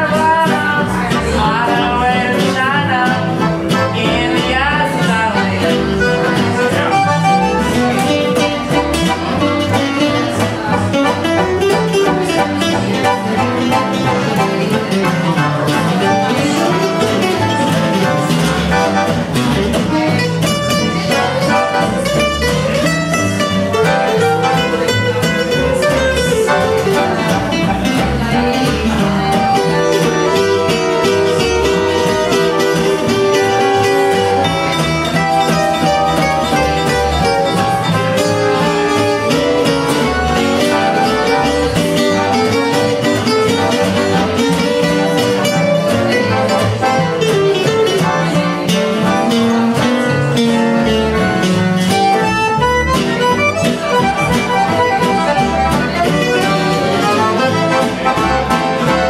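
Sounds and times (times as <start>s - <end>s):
accordion melody: 0.0s - 59.0s
plucked double bass: 0.0s - 59.0s
strummed rhythm guitar: 0.0s - 59.0s.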